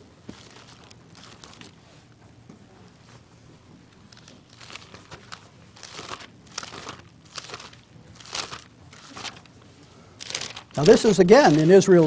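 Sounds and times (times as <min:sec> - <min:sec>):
pages rustling: 0:00.3 - 0:01.8, 0:04.1 - 0:09.5, 0:10.2 - 0:12.0.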